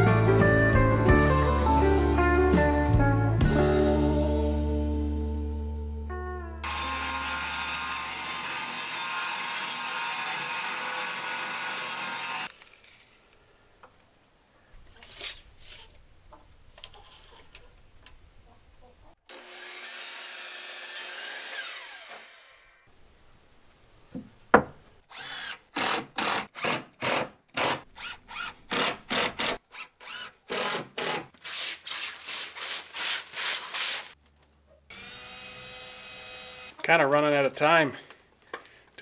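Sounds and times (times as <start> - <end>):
power tool running: 6.6 - 12.5, 34.9 - 36.8.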